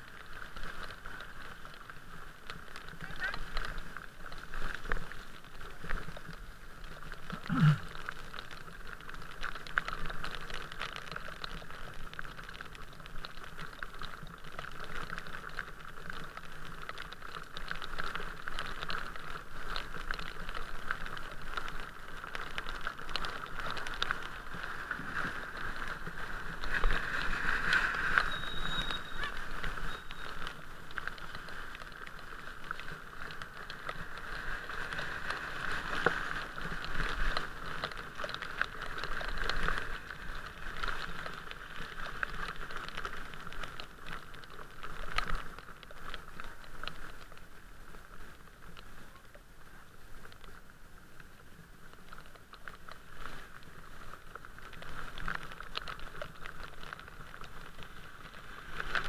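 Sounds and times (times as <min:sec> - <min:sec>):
raindrops pattering on camera: 0:00.0 - 0:59.0
tyres hissing on wet road: 0:22.7 - 0:32.4.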